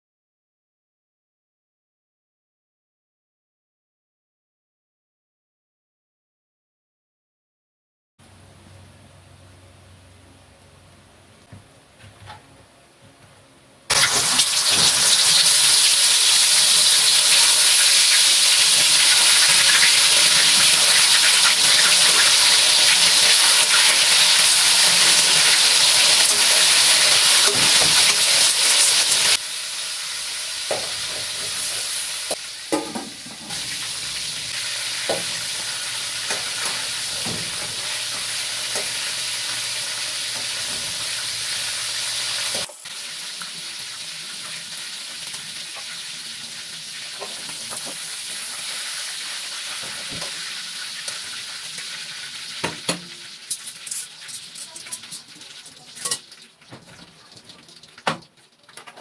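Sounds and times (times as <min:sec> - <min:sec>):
chicken sizzling in hot oil: 0:13.9 - 0:58.9
metal spatula scraping wok: 0:53.4 - 0:56.4.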